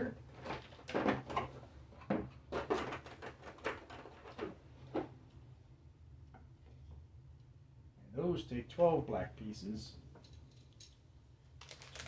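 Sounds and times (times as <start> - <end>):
plastic parts knocking and rattling: 0.3 - 5.1.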